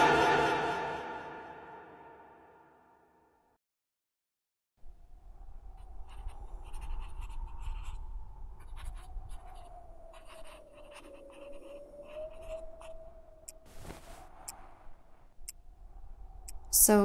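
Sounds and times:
pen scratching on paper: 6.1s - 8.0s, 8.6s - 13.0s.

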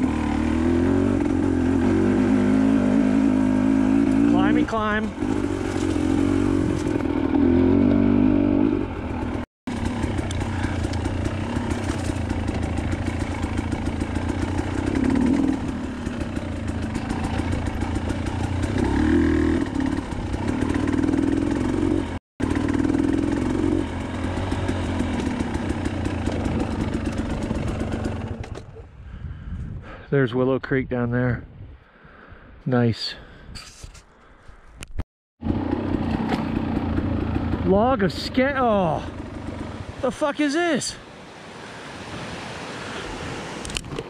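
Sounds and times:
dirt bike engine revving: 0.0s - 28.6s, 35.4s - 40.8s.

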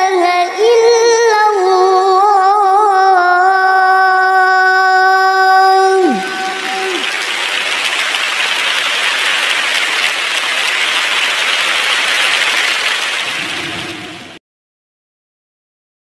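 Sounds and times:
sung call to prayer: 0.0s - 8.5s
audience applause: 5.8s - 14.4s.

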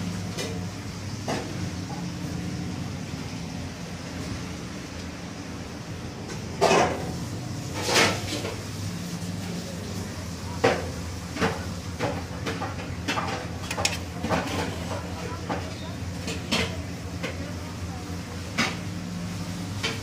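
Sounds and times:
low machine hum: 0.0s - 20.0s
sharp knocks and clatters: 10.6s - 17.4s.

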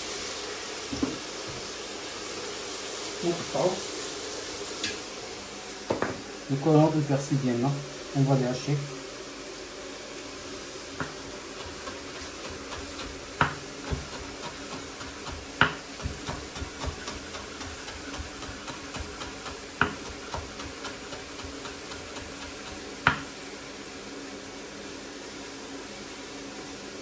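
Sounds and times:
knocks on cutting board: 0.9s - 1.2s, 5.9s - 6.2s, 11.0s - 12.0s, 12.7s - 22.0s, 23.0s - 23.3s
knife chopping on cutting board: 11.0s - 23.3s.

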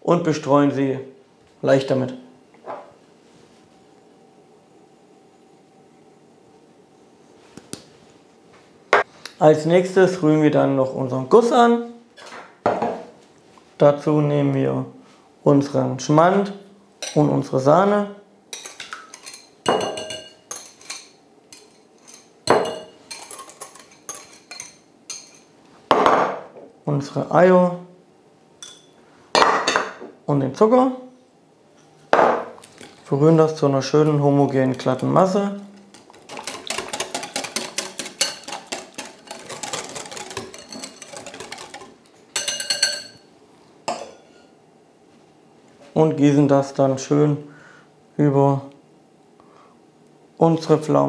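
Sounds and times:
whisk clinking on glass bowl: 18.6s - 25.5s, 35.9s - 43.3s
whisk scraping glass bowl: 34.4s - 43.2s.

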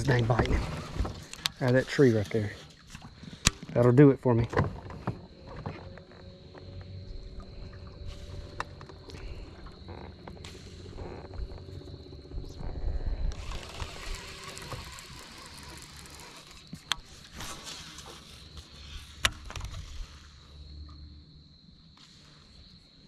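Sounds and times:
electric motor whining: 10.4s - 17.1s.

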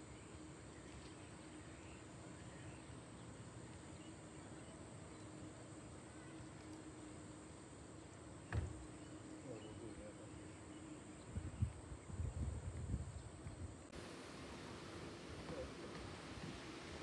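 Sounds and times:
faint steady hum: 0.0s - 17.0s
single thump: 8.5s - 8.8s
wind buffeting microphone: 11.2s - 13.9s.

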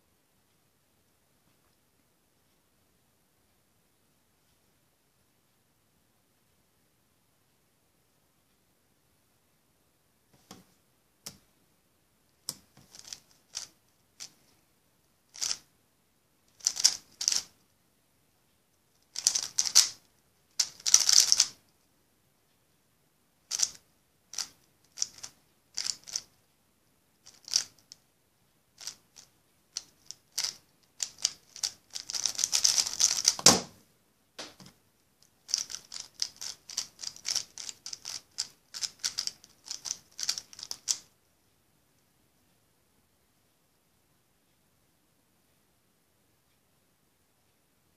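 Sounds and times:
speed cube layers clacking: 12.5s - 14.4s, 15.3s - 15.7s, 16.5s - 17.6s, 19.0s - 20.0s, 20.6s - 21.6s, 23.5s - 26.3s, 27.2s - 28.0s, 28.8s - 33.7s, 35.4s - 41.1s.

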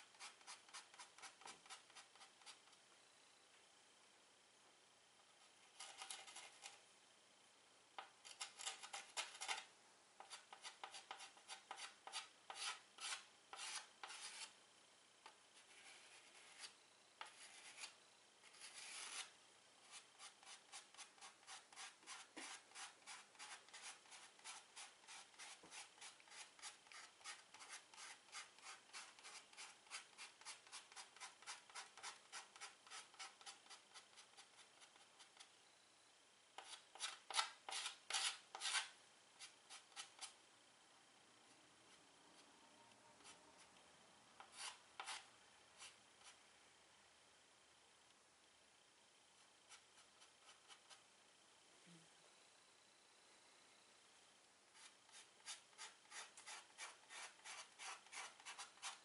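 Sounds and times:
chalk dabbing on a board: 0.0s - 2.6s, 10.2s - 14.5s, 15.6s - 35.5s, 54.8s - 59.0s
chalk scratching on a chalkboard: 0.0s - 2.7s, 5.7s - 6.8s, 8.2s - 14.5s, 15.6s - 35.5s, 36.6s - 40.4s, 44.4s - 46.4s, 49.7s - 51.0s, 54.8s - 59.0s.

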